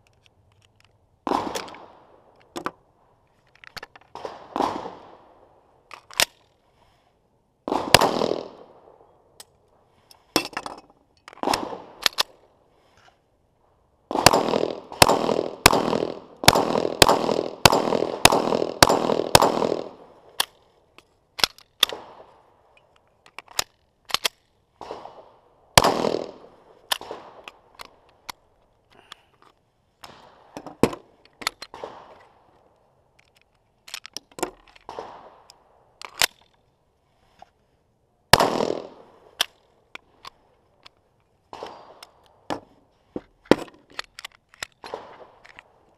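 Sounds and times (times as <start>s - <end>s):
pistol shots: 1.3s - 2.1s, 4.1s - 5.3s, 7.7s - 8.9s, 11.4s - 12.2s, 14.1s - 20.2s, 24.8s - 27.7s, 31.7s - 32.2s, 34.9s - 35.5s, 38.3s - 39.4s, 41.5s - 42.2s, 44.8s - 45.4s
mechanical handling clicks: 5.9s - 6.6s, 11.2s - 12.4s, 20.4s - 22.0s, 22.8s - 24.6s, 33.1s - 36.6s, 43.4s - 45.9s.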